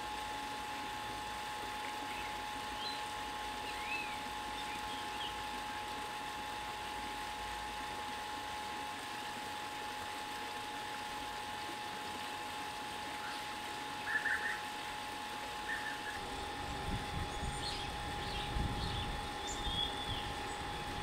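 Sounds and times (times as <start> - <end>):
bird calls: 14.0 - 14.6, 15.7 - 16.2, 17.3 - 20.6.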